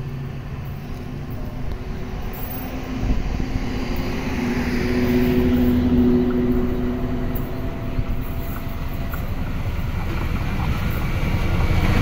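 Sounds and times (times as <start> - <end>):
steady low tones: 0.0 - 11.6
locomotive engine drone: 0.0 - 12.0.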